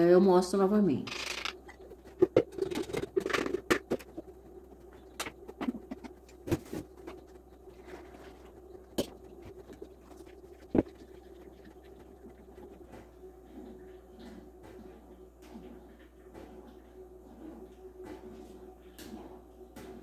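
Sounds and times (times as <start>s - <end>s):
steady low hum: 0.0s - 20.0s
wooden spoon working pulp through strainer: 1.1s - 14.6s.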